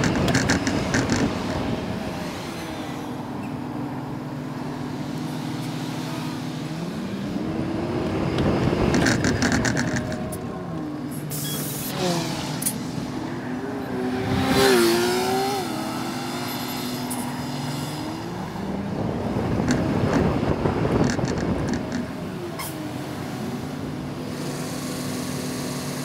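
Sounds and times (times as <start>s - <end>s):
bus engine and transmission whine: 0.0s - 26.0s
road and wind noise: 0.0s - 26.0s.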